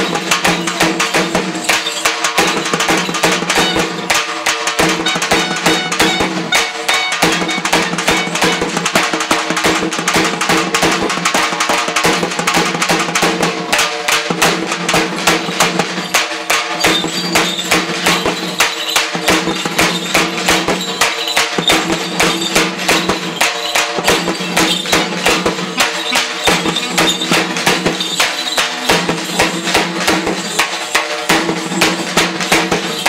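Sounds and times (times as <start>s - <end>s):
fast drum beat: 0.0s - 33.0s
sustained pitched tones: 24.5s - 28.0s.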